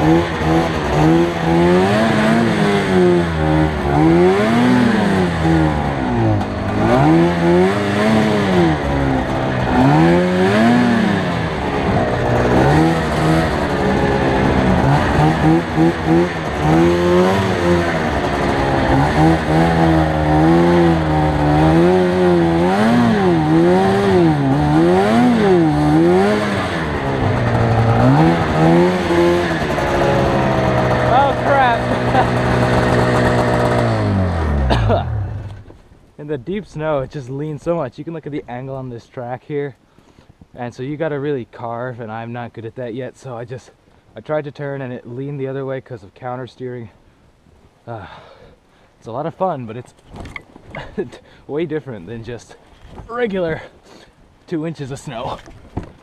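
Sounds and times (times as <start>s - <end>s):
snowmobile engine revving: 0.0s - 35.7s.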